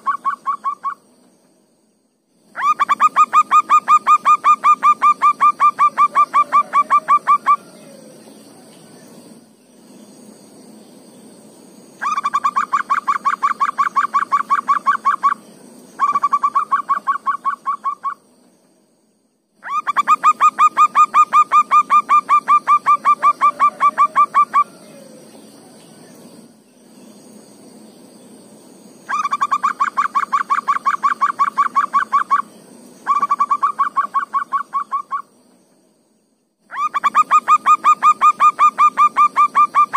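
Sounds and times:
dove calling: 0:00.0 - 0:01.0, 0:02.6 - 0:09.0, 0:12.0 - 0:15.4, 0:16.0 - 0:18.2, 0:19.6 - 0:26.0, 0:29.1 - 0:35.3, 0:36.7 - 0:39.9
faint high-pitched hum: 0:00.0 - 0:39.9.

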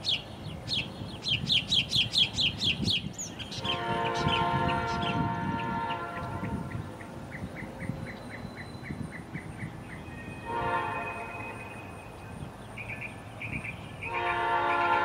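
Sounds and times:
distant train horn blasts: 0:03.6 - 0:06.9, 0:10.1 - 0:12.2, 0:14.0 - 0:15.0.

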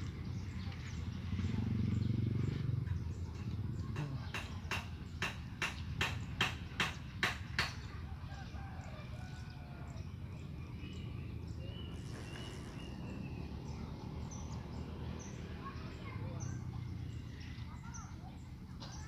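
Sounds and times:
faint bird calls: 0:11.6 - 0:14.6.

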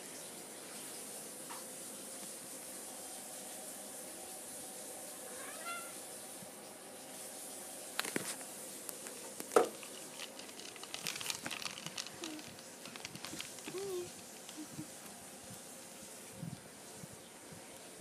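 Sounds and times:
cat meowing: 0:05.3 - 0:06.0
light clicks and rustles: 0:08.0 - 0:15.2.

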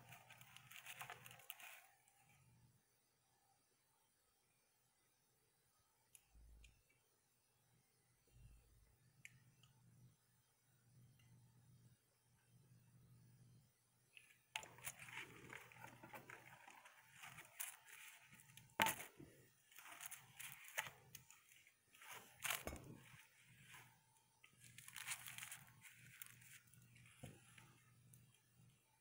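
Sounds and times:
paper sleeves rustling: 0:00.0 - 0:02.0, 0:14.6 - 0:28.0.

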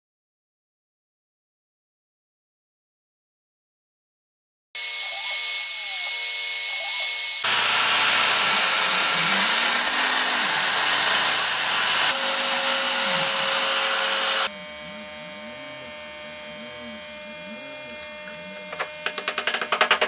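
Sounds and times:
stepper motors gliding in pitch: 0:04.8 - 0:15.0
router spindle whine: 0:04.8 - 0:20.0
wood cutting noise: 0:04.8 - 0:20.0.

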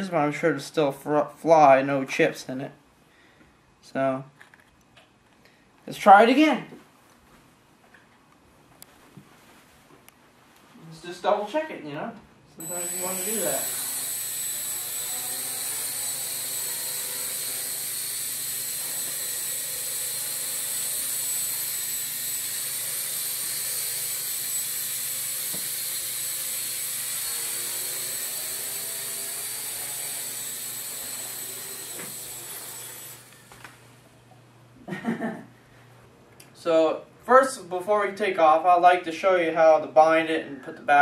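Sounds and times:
quadcopter propellers whining: 0:12.6 - 0:33.5.

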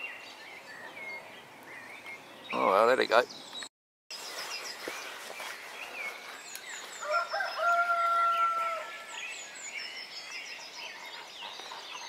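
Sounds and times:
small birds chirping: 0:00.0 - 0:12.0
rooster crowing: 0:07.0 - 0:09.1.

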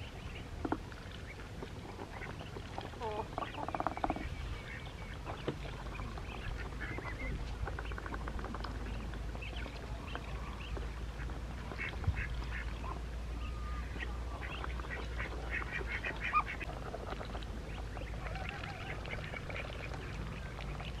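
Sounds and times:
ducks quacking: 0:10.1 - 0:21.0.

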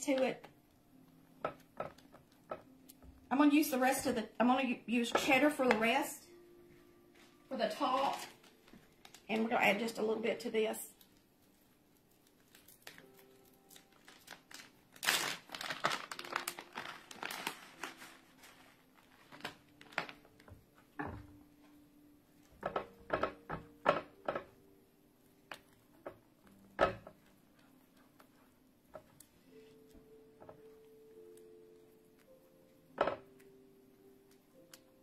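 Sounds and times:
plastic bag crinkling: 0:07.6 - 0:10.0, 0:10.9 - 0:20.6.

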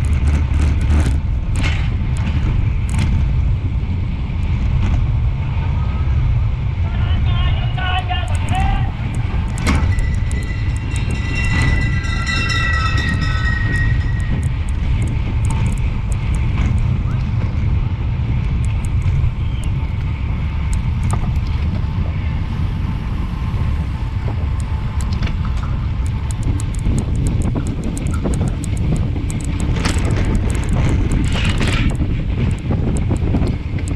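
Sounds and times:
bicycle tyre noise: 0:00.0 - 0:33.9
wind rushing over microphone: 0:00.0 - 0:33.9
high tones ringing: 0:08.3 - 0:15.7.

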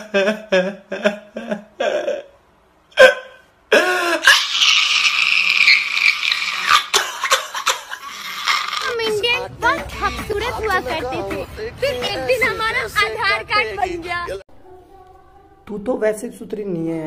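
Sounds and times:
man crying and wailing: 0:00.0 - 0:02.4, 0:03.0 - 0:09.0, 0:09.7 - 0:14.4.

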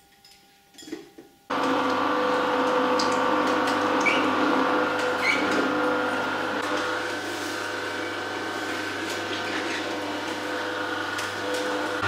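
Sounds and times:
juicer motor humming: 0:01.5 - 0:12.0
squeaks of pressed fruit: 0:04.0 - 0:04.4, 0:05.2 - 0:05.6, 0:09.3 - 0:10.0.

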